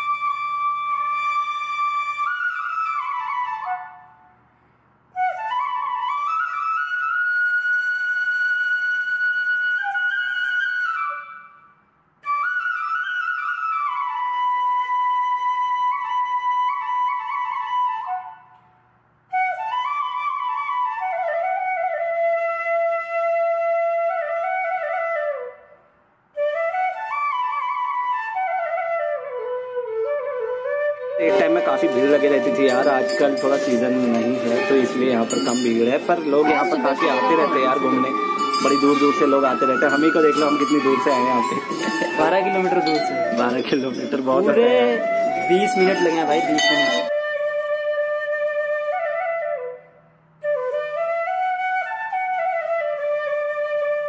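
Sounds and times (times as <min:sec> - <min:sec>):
solo flute melody: 0:00.0 - 0:04.4, 0:05.1 - 0:54.0.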